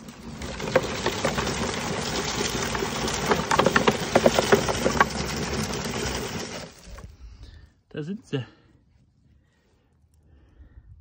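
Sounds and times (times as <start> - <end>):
leaf collector brush whirring: 0.0 - 7.1.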